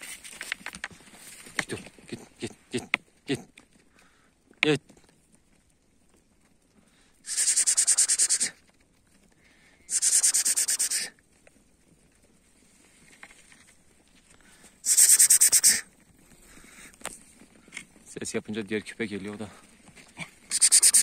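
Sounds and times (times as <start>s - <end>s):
person hissing with mouth: 7.2s - 8.6s, 9.9s - 11.2s, 14.8s - 15.9s, 20.5s - 21.0s.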